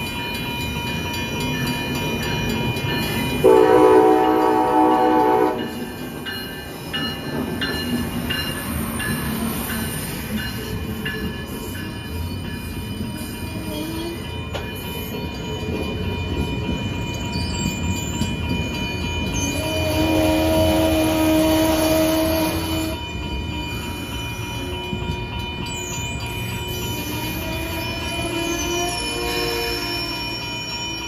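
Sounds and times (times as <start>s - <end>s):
crossing bell ringing: 0.0s - 31.0s
train rolling past: 0.0s - 31.0s
train horn blast: 3.4s - 5.8s, 19.8s - 23.0s.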